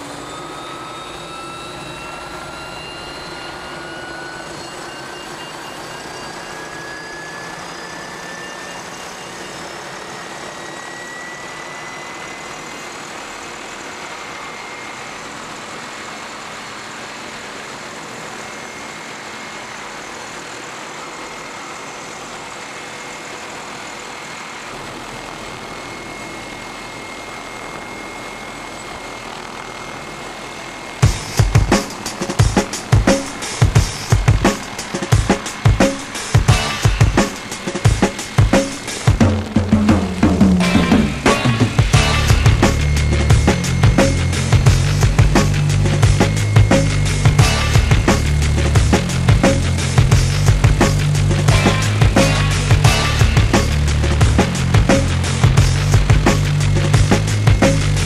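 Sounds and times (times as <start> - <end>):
helicopter turbine whine: 0.0 - 58.0
steady rushing noise: 0.0 - 58.0
low rumble: 24.8 - 58.0.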